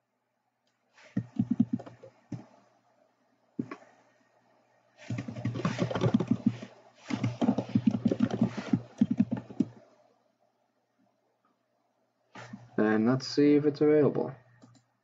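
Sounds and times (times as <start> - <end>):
rapid typing on keyboard: 1.2 - 2.4, 5.0 - 9.8.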